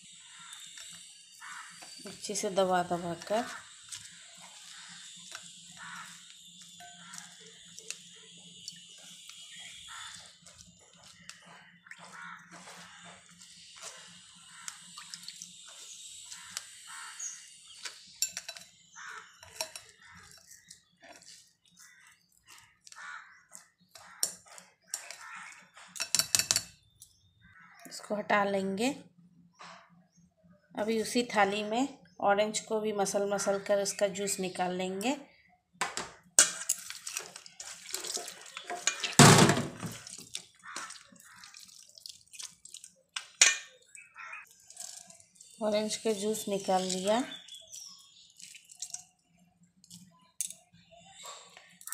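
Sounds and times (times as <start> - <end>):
wet squelching of fruit: 0.3 - 18.2, 19.0 - 25.7, 36.8 - 50.2
spatula scraping metal strainer: 36.6 - 39.2.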